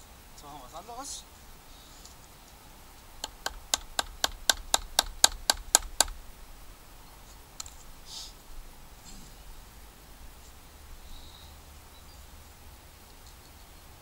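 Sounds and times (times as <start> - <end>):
wooden baton striking knife: 3.2 - 6.2.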